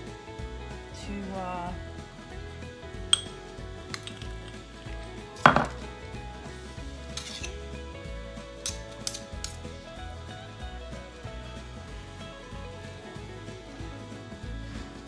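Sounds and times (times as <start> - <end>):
glass jar set down on stone: 3.1 - 3.3, 3.9 - 4.6, 5.4 - 5.8
spoon clinking against glass jar: 3.1 - 3.3.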